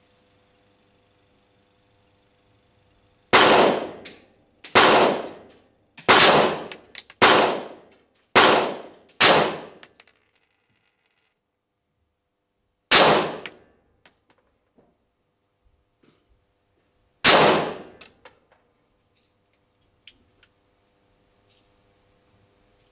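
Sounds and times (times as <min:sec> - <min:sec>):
pistol shots with ringing echo: 0:03.4 - 0:04.1, 0:04.7 - 0:05.5, 0:06.1 - 0:09.8, 0:12.9 - 0:13.6, 0:17.2 - 0:18.0.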